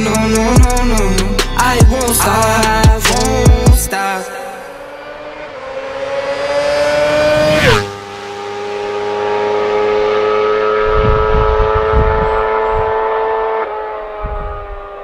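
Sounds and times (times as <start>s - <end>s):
motorcycle engine passing at speed: 4.5s - 15.0s.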